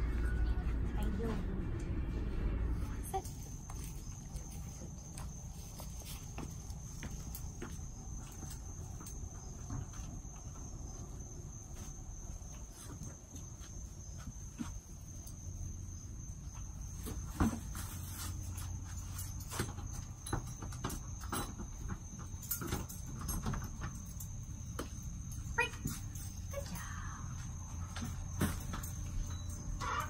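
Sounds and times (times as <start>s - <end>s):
low rumble: 0.0s - 5.2s
insects trilling: 3.0s - 30.0s.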